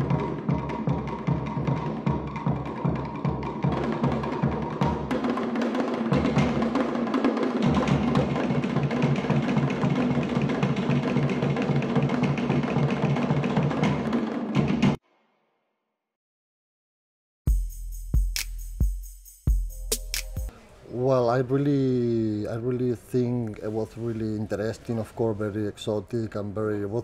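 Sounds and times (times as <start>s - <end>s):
percussion music with rapid drums: 0.0s - 15.0s, 17.5s - 20.5s.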